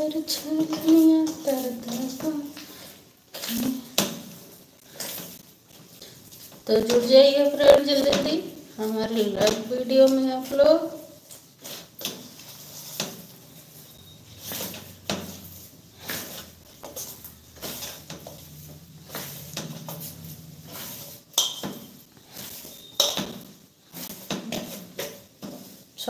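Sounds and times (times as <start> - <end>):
metal bowl clinking on counter: 21.3 - 21.9.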